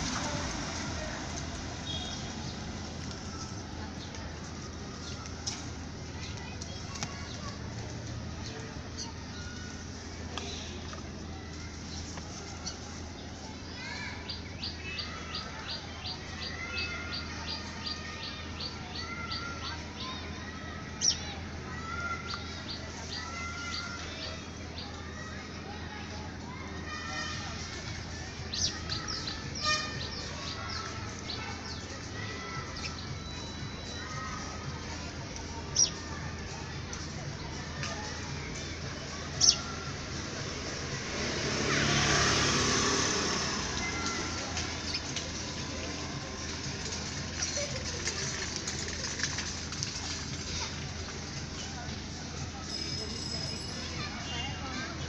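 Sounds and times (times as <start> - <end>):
motor vehicle passing: 0.0 - 10.4, 38.2 - 51.8.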